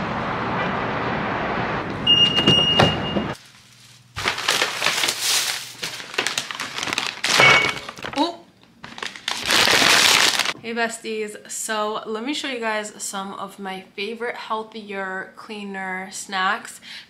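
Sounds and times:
parking garage rumble: 0.0 - 3.4
high beep: 2.0 - 3.4, 7.4 - 7.8
shopping bags rustling: 2.4 - 10.6.

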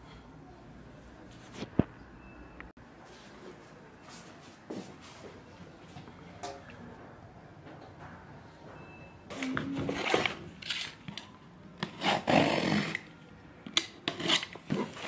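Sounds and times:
box cutter slitting packing tape: 11.8 - 13.1, 13.8 - 15.0.

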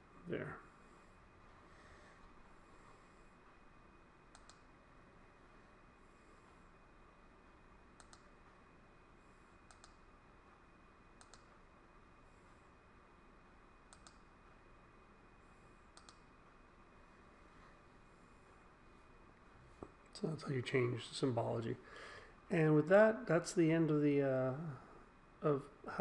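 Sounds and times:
low room hiss: 0.0 - 26.0
computer mouse clicks: 4.3 - 4.7, 8.0 - 8.4, 9.6 - 10.1, 11.2 - 11.6, 13.9 - 14.3, 15.9 - 16.3.

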